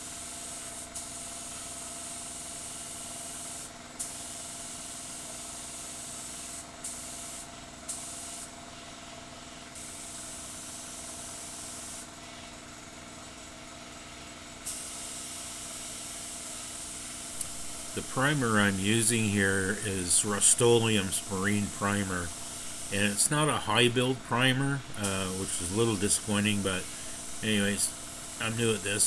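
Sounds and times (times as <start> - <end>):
spray gun hissing: 16.5 - 29.0
steady hum: 17.2 - 29.0.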